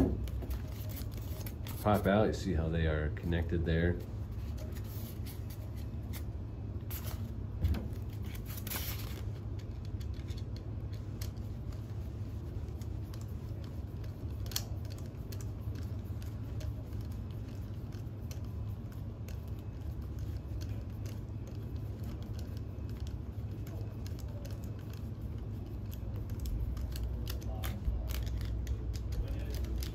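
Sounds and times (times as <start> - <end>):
steady low hum: 0.0 - 29.9
faint metal clicks and scraping: 8.7 - 11.9.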